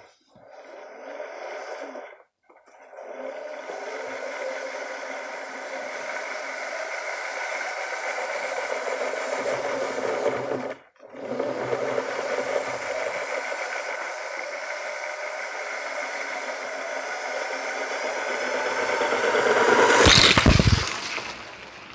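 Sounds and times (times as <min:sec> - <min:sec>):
toy train motor whirring: 0:00.0 - 0:21.9
train rattling on plastic track: 0:00.0 - 0:21.9.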